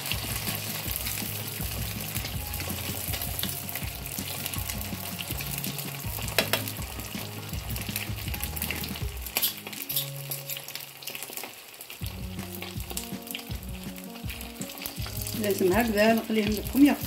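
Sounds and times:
spring rolls deep-frying in oil: 0.0s - 17.0s
sharp oil pops: 6.3s - 6.8s.

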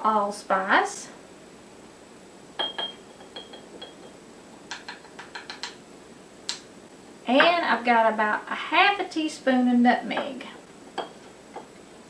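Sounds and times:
spoon clinking on glass jar: 2.6s - 4.2s.

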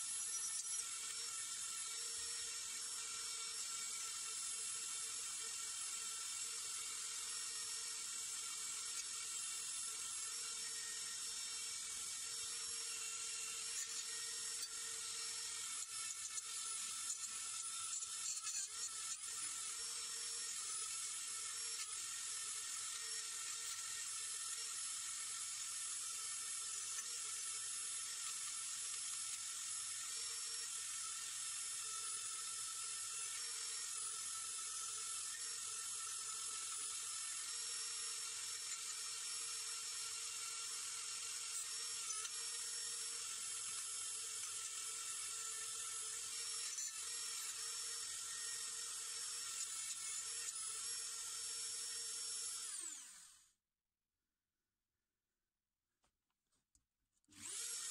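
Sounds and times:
rotary tool whining: 0.0s - 53.6s, 57.3s - 57.9s.

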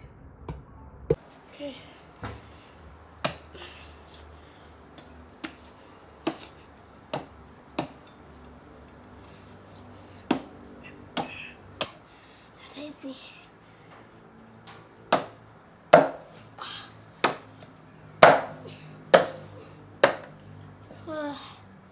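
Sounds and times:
cleaver chopping ribs: 3.2s - 3.5s, 4.9s - 8.1s, 10.3s - 11.4s, 15.1s - 16.3s, 17.2s - 17.6s, 18.2s - 19.4s, 20.0s - 20.4s.

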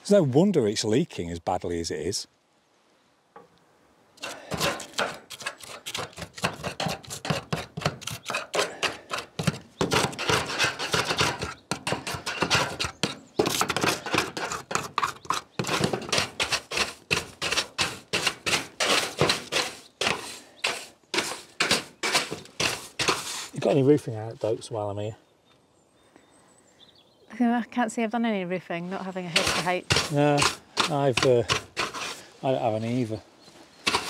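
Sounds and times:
screwdriver scraping metal roof: 4.2s - 23.5s, 29.3s - 32.2s.

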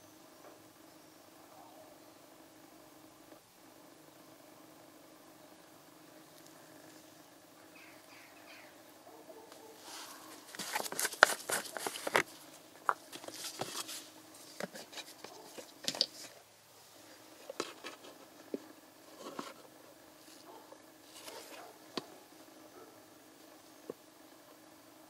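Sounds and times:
plastic bottle crackling: 10.3s - 16.4s.

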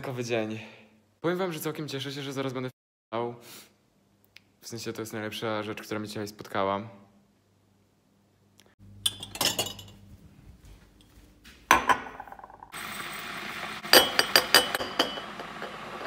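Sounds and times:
glass mug clinking: 9.0s - 10.0s, 13.9s - 16.0s.

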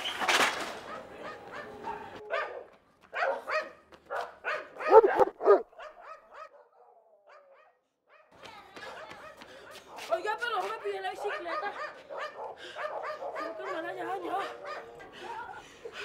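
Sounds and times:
dog barking and yipping: 0.9s - 8.2s, 11.2s - 15.0s.

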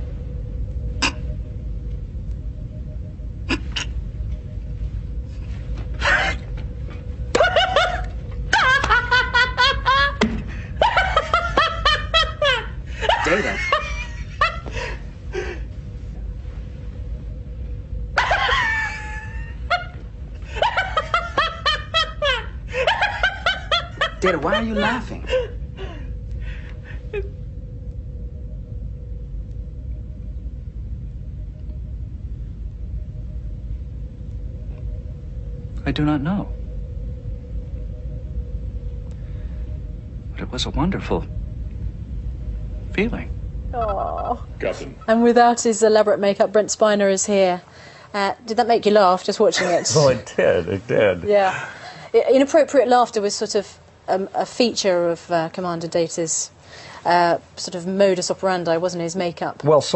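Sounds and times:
low engine rumble: 0.0s - 59.1s
faint steady hum: 0.0s - 59.9s
man laughing: 10.8s - 14.7s, 49.6s - 51.9s.

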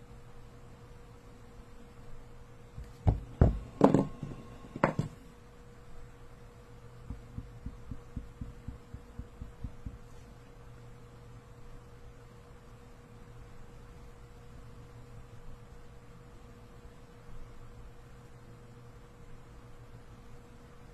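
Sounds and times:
low steady hum: 0.0s - 20.9s
marker tip tapping on spinning disc: 7.0s - 10.1s.

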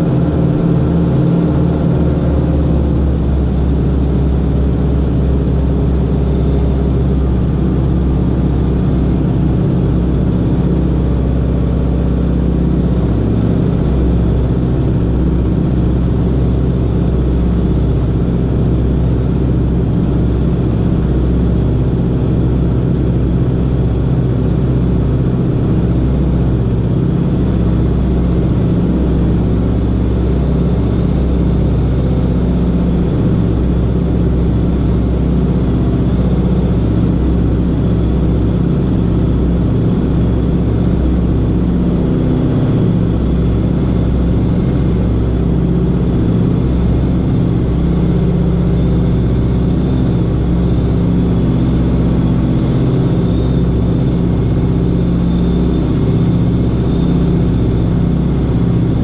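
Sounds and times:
piston aircraft engines droning: 0.0s - 59.0s.

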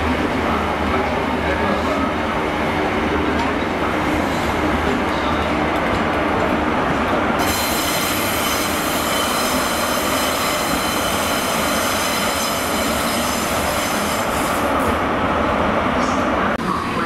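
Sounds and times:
high-pitched metallic squeal: 7.4s - 14.5s.

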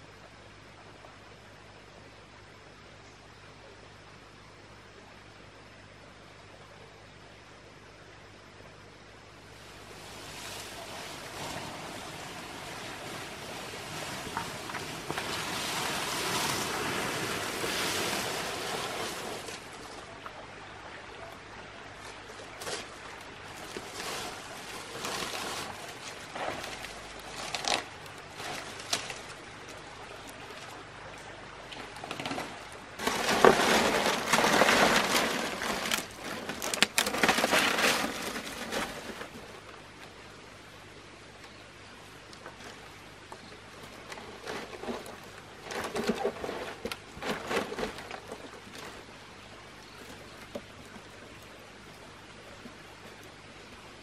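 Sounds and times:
palm fronds rustling and scraping: 9.4s - 20.4s, 21.8s - 40.2s, 42.3s - 53.4s
leaves snapping: 22.4s - 30.8s, 31.7s - 39.0s.

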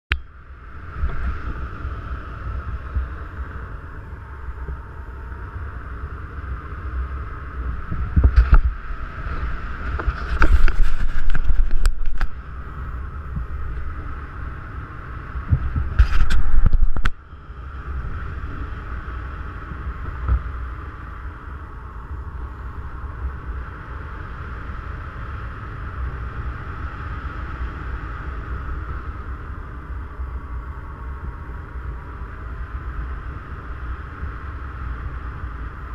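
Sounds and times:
wind rumble on microphone: 0.1s - 35.9s.

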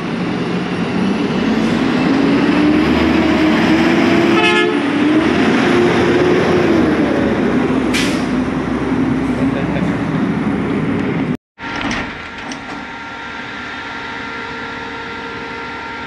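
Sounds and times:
garbage truck engine passing: 0.0s - 16.0s
short horn toot: 4.4s - 4.8s.

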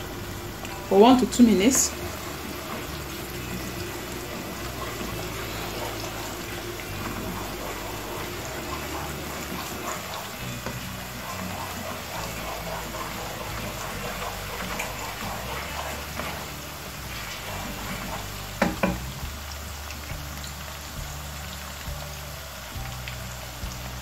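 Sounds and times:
wooden spoon stirring: 0.0s - 19.1s
onion sizzling in oil: 0.0s - 24.0s.

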